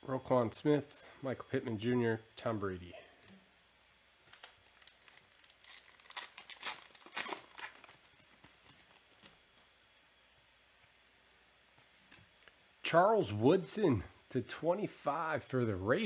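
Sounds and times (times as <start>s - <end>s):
foil wrapper tearing and crinkling: 4.2s - 9.5s.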